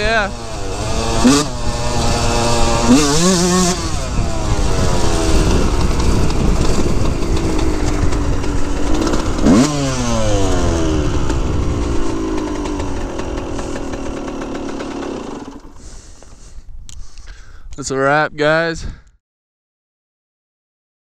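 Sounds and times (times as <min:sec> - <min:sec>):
two-stroke motorbike engine revving: 0:00.0 - 0:16.1.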